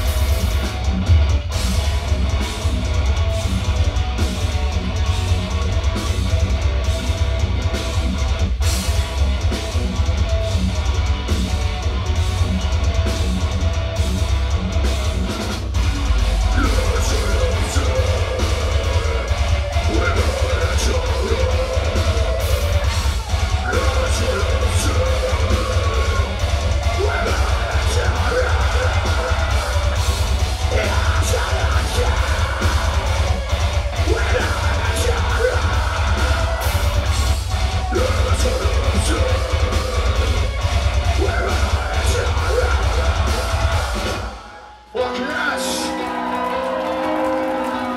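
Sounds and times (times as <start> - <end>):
metal band playing live: 0.0 - 47.9
vocals: 14.4 - 47.9.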